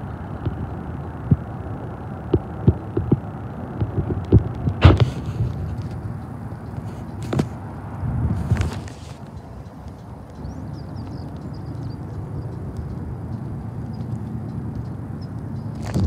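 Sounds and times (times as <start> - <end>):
wind buffeting microphone: 0.0 - 16.0
sharp knocks: 3.8 - 5.6.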